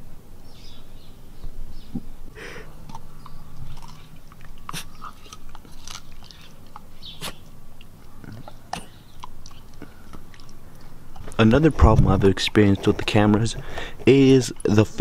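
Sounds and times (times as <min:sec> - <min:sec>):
dog crunching broccoli: 0:02.6 - 0:15.0.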